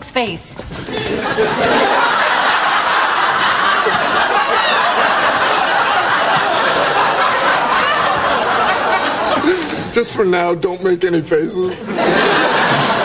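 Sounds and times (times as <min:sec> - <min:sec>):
audience laughing: 0:00.8 - 0:09.9, 0:11.7 - 0:13.0.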